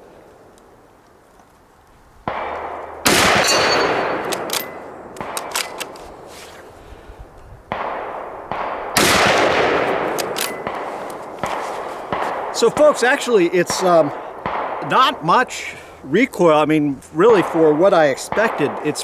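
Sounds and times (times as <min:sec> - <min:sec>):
rifle shots echoing: 0:02.2 - 0:06.3, 0:07.7 - 0:15.8, 0:17.2 - 0:19.0
rifle bolt clicks: 0:03.5 - 0:06.1, 0:10.0 - 0:11.2.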